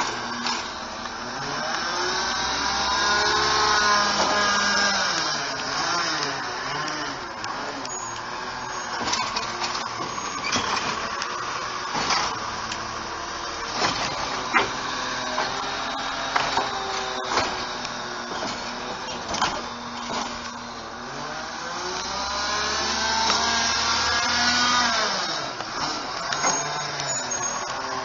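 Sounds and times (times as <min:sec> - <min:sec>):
garbage truck hiss and whine: 0:00.0 - 0:28.0
truck engine revving: 0:00.0 - 0:28.0
clanks and knocks from truck body: 0:13.7 - 0:15.7, 0:16.3 - 0:17.7, 0:18.3 - 0:20.5.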